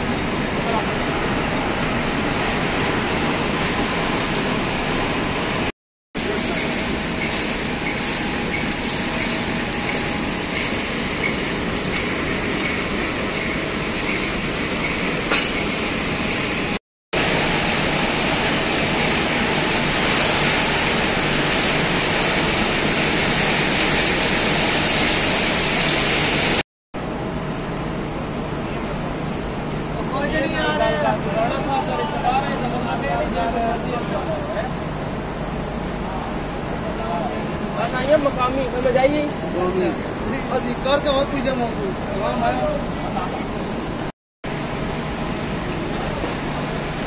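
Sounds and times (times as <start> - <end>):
gas torch hissing: 6.2 - 13.9, 17.4 - 26.6.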